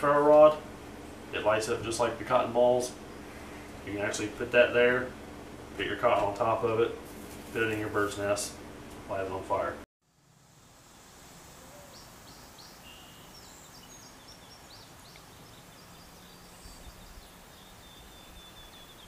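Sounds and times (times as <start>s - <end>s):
steady background hiss: 0.0s - 19.0s
birds chirping: 0.9s - 5.8s, 11.6s - 19.0s.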